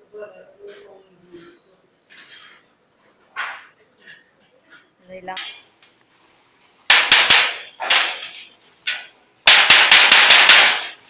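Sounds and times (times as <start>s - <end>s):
hammer striking sheet metal: 6.9s - 11.0s.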